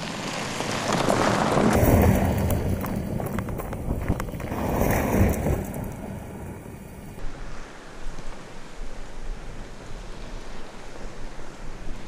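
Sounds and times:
small stone ticks: 0.0 - 6.1
tyres rushing on gravel: 0.0 - 7.2.

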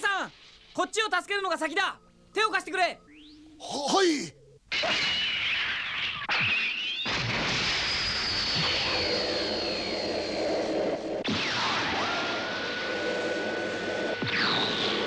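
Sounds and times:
falling whistles: 4.9 - 15.0
thin high whine: 7.7 - 15.0.

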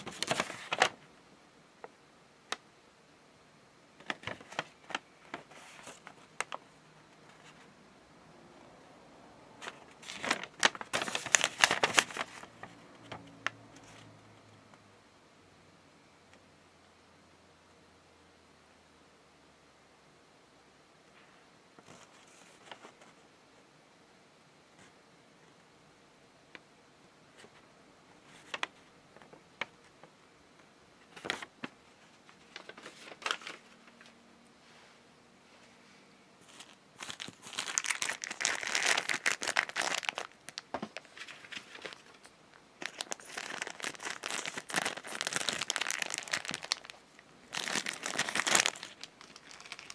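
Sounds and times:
paper crinkling and rustling: 0.0 - 1.1, 4.0 - 7.7, 9.6 - 14.1, 21.8 - 23.2, 28.2 - 30.1, 31.0 - 34.2, 36.4 - 49.9.

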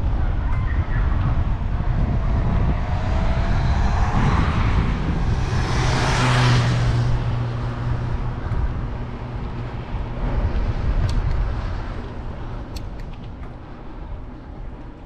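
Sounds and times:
wind rumble on microphone: 0.0 - 15.0
car passing by: 1.5 - 12.3.

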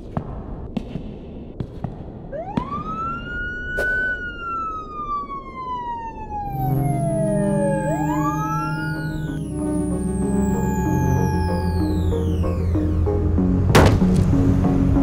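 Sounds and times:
synth tone sweeping in pitch: 2.4 - 13.7
sustained synth chords: 5.5 - 15.0.

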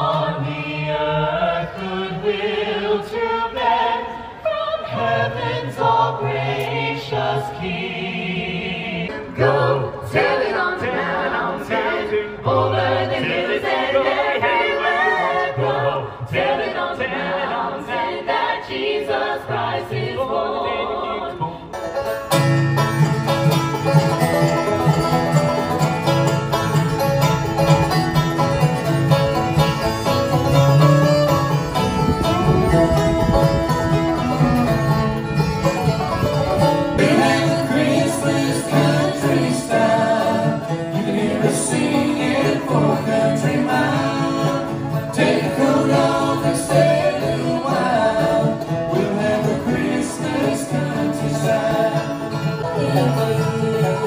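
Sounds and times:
choir singing a carol: 0.0 - 21.8, 36.8 - 54.0
bluegrass string band playing: 19.5 - 54.0.

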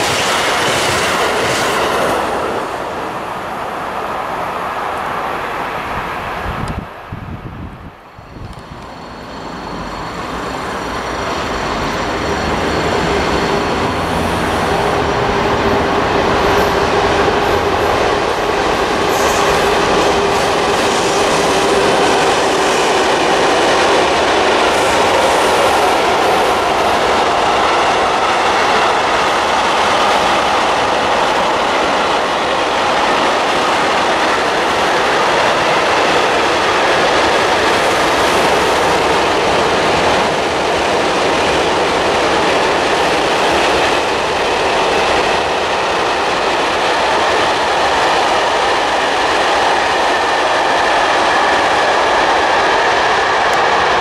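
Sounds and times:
freight train rolling rumble: 0.0 - 4.7, 5.6 - 54.0
held whine: 8.2 - 15.9.

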